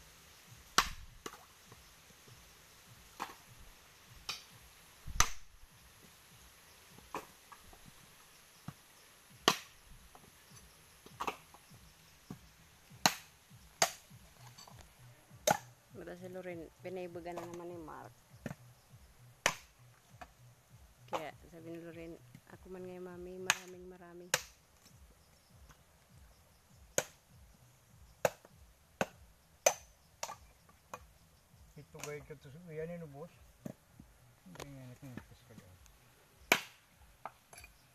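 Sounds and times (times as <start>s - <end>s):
knife striking coconuts: 0.7s - 1.4s, 5.1s - 5.5s, 9.4s - 9.8s, 11.0s - 11.6s, 12.3s - 14.8s, 15.4s - 15.7s, 17.3s - 17.6s, 19.4s - 19.8s, 23.4s - 24.6s, 27.0s - 27.2s, 28.2s - 31.0s, 36.5s - 37.5s.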